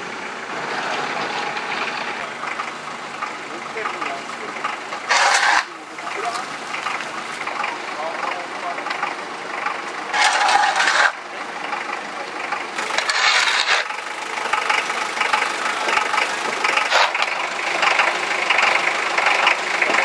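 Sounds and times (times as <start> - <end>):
spade scooping and scraping: 5.0 - 6.5, 10.1 - 11.2, 12.8 - 14.0, 16.8 - 17.3.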